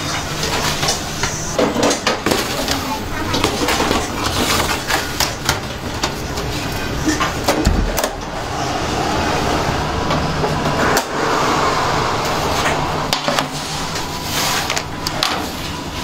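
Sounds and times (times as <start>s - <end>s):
metal baking trays clanking: 0.0s - 8.8s
oven fan and machine noise: 0.0s - 16.0s.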